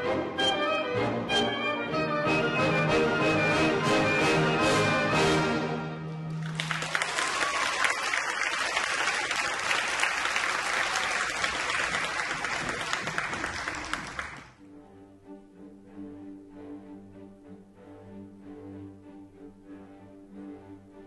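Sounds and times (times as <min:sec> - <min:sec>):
audience applauding: 0:06.3 - 0:14.6
quiet music: 0:14.6 - 0:21.0.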